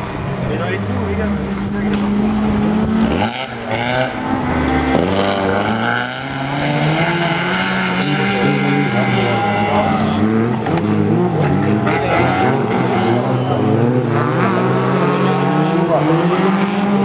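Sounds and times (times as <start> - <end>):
race car engines revving: 0.0 - 17.0.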